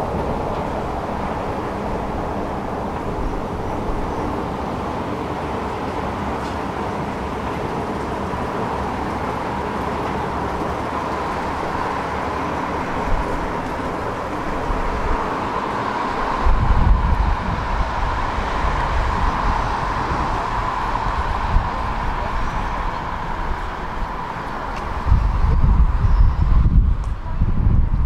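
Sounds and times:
city street traffic hum: 0.0s - 28.0s
heavy low rumble: 16.1s - 28.0s.

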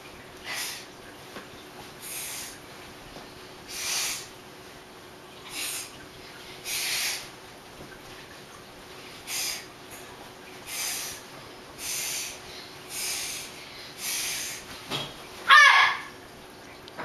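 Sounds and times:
girl crying out: 15.5s - 16.1s.

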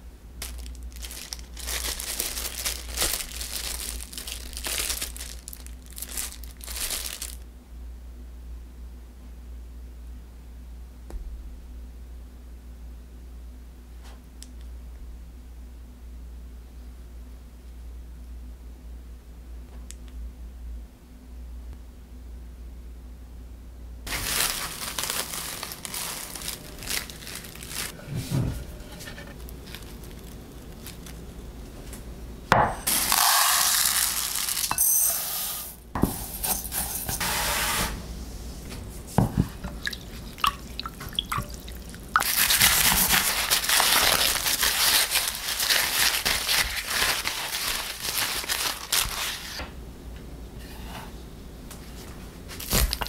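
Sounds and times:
corn husks crackling and tearing: 0.4s - 7.4s, 24.1s - 28.0s, 29.2s - 31.3s, 33.0s - 34.7s, 41.5s - 49.6s, 52.6s - 53.0s
dry rice pouring into plastic cup: 32.9s - 34.7s.

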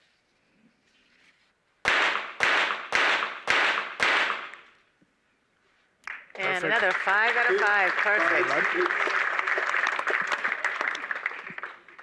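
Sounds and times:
pistol shots: 1.9s - 4.6s.

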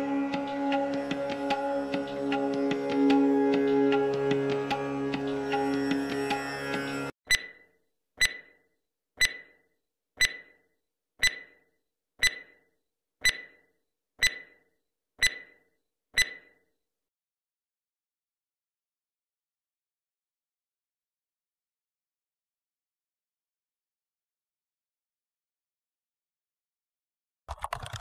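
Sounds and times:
countdown timer ringing ticks: 5.2s - 7.6s, 8.2s - 8.6s, 9.2s - 9.6s, 10.2s - 10.6s, 11.2s - 11.6s, 12.2s - 12.6s, 13.2s - 13.6s, 14.2s - 14.6s, 15.2s - 15.6s, 16.2s - 16.6s.

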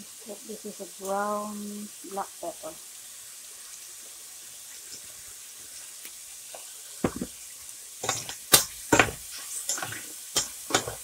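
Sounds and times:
food sizzling in oil: 0.0s - 11.0s
metal spoon scraping pan: 8.0s - 11.0s.

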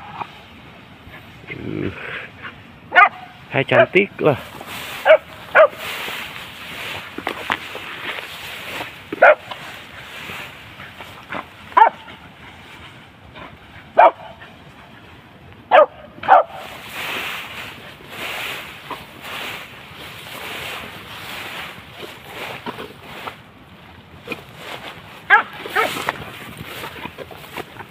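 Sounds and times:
steady rustling: 2.2s - 27.9s
dog barking: 2.9s - 3.9s, 5.0s - 5.8s, 9.2s - 9.5s, 11.7s - 12.1s, 14.0s - 14.4s, 15.7s - 16.7s, 25.3s - 26.0s.

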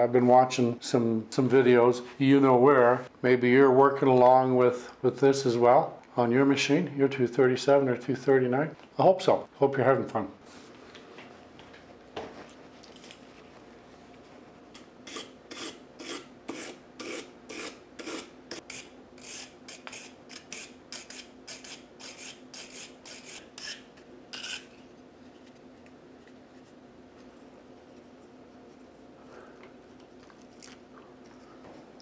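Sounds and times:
wire brush scrubbing metal: 15.1s - 24.7s.

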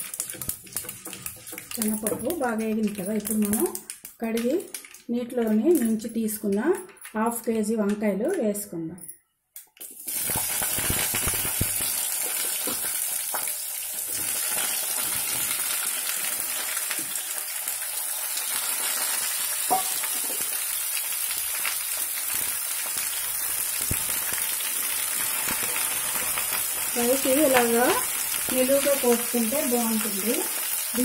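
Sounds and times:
wooden spatula stirring: 0.0s - 4.0s
hot oil sizzling and crackling: 0.0s - 5.0s, 9.8s - 31.0s.

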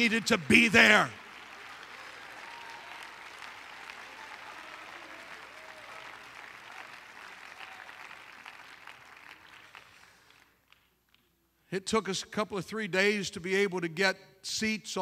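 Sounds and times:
congregation applauding: 0.0s - 10.9s.

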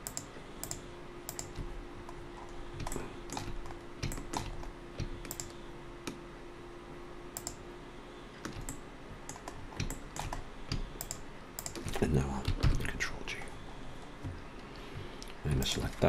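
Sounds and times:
computer mouse clicks: 0.0s - 1.6s, 2.8s - 6.2s, 7.4s - 7.6s, 8.4s - 12.0s
faint steady hum: 0.0s - 16.0s
keyboard keys clicking: 2.8s - 5.6s, 8.4s - 12.8s.

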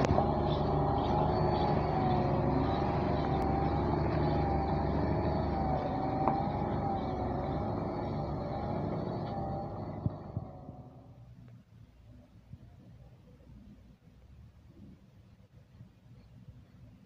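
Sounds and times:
heavy diesel truck engine running: 0.0s - 11.3s.

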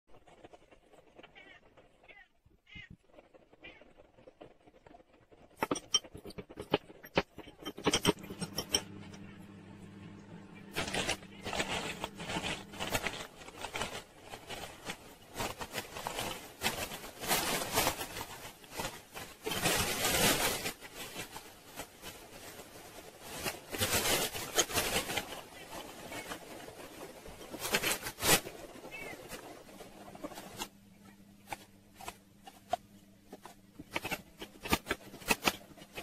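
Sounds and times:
plastic bags rustling: 10.6s - 36.0s.

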